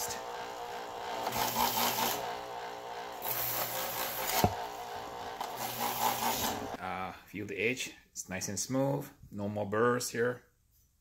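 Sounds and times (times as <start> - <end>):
electric knife sharpener humming: 0.0 - 6.8.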